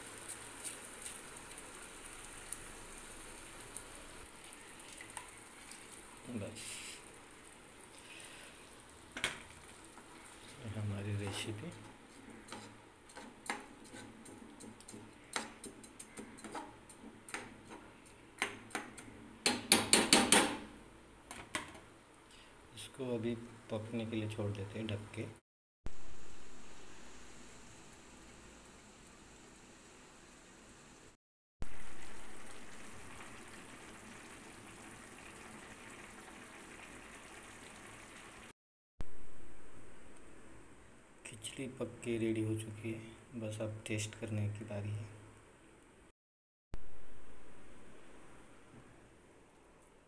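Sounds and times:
pot simmering with bubbling hiss: 0.0s - 19.4s, 25.9s - 38.5s
spatula scraping frying pan: 11.2s - 17.8s.

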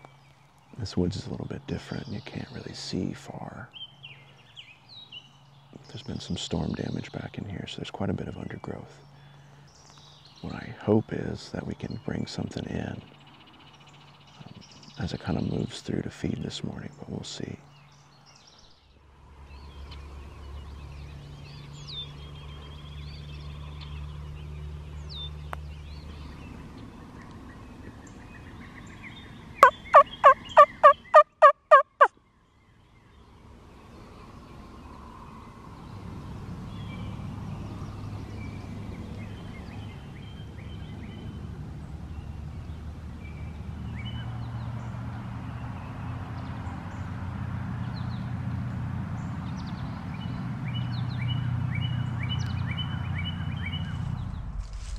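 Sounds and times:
faint songbird chirps: 0.0s - 54.9s
turkey gobbling: 29.6s - 32.1s
low steady rumble: 34.8s - 54.9s.

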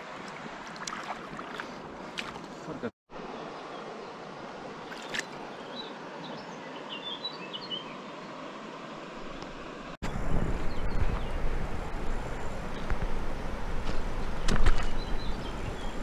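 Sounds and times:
shallow river rushing: 0.0s - 16.0s
low rumbling noise: 10.0s - 16.0s.

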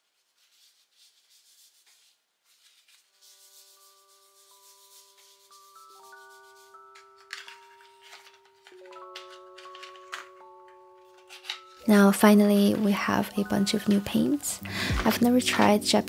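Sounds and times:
tissue wiping desk surface: 0.0s - 8.2s
soft background music: 2.4s - 16.0s.

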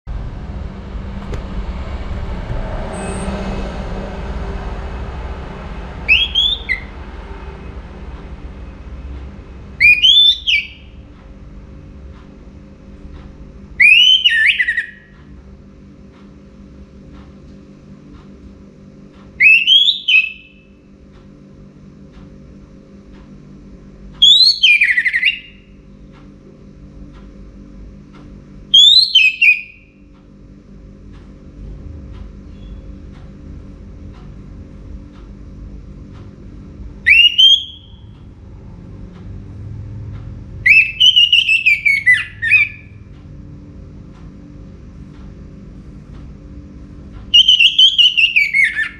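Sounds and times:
low rumbling background: 0.0s - 48.9s
thrush whistled song: 6.1s - 7.0s, 9.8s - 11.0s, 13.8s - 15.1s, 19.4s - 20.7s, 24.2s - 25.6s, 28.7s - 29.9s, 37.0s - 38.1s, 40.6s - 43.0s, 47.3s - 48.9s.

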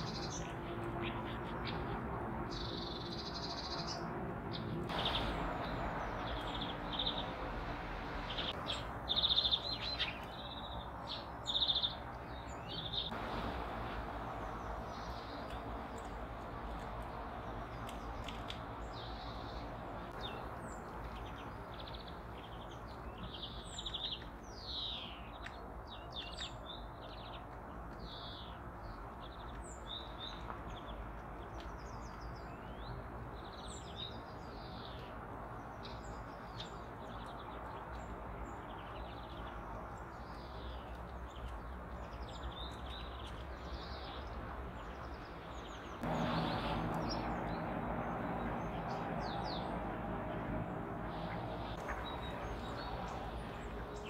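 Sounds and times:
songbirds chirping: 0.0s - 54.0s.

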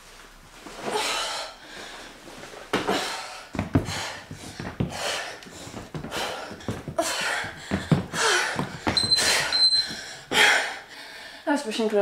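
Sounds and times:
woman breathing hard: 0.9s - 2.2s, 2.8s - 11.5s
dull thumps: 2.7s - 10.5s
high steady tone: 9.0s - 10.0s.

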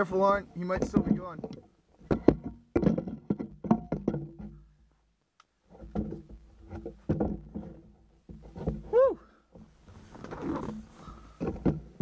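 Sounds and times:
handling knocks and taps: 0.6s - 4.6s, 5.7s - 8.9s.

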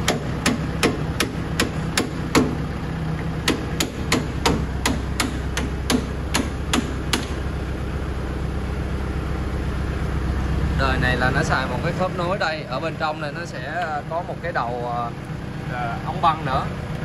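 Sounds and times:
hammer knocking on metal: 0.0s - 2.6s, 3.4s - 7.4s
steady low hum: 0.0s - 17.0s.

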